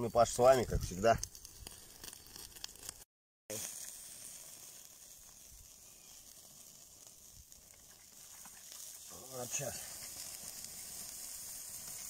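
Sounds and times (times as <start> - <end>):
meat sizzling on coals: 0.0 - 12.0
steam hissing: 3.5 - 12.0.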